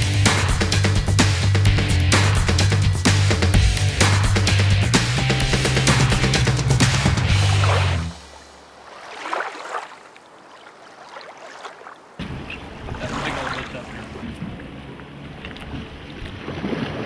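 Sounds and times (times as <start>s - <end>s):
water splashing against boat: 6.8s - 17.0s.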